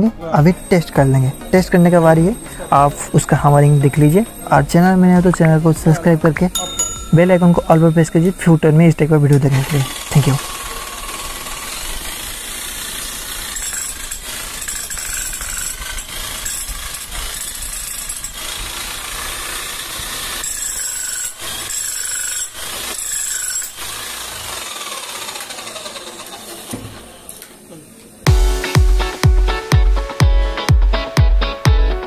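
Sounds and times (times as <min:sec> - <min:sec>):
motor whine winding down: 0:07.2 - 0:21.9, 0:23.7 - 0:28.2.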